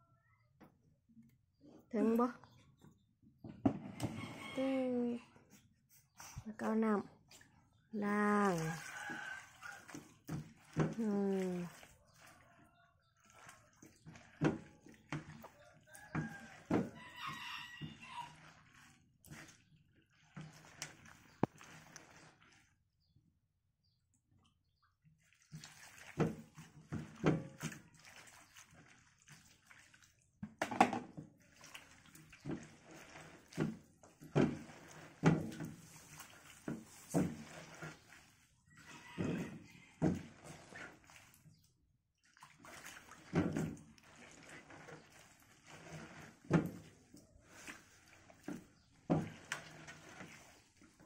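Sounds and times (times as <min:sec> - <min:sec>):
dipper scooping water: 0:03.4 - 0:22.8, 0:25.0 - 0:51.0
water sloshing in metal tray: 0:03.4 - 0:23.0, 0:24.9 - 0:51.0.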